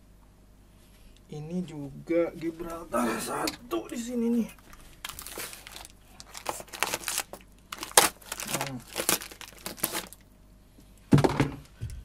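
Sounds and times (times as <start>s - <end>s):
plastic packaging crinkling: 4.0s - 10.3s
scissors cutting plastic: 5.1s - 10.2s.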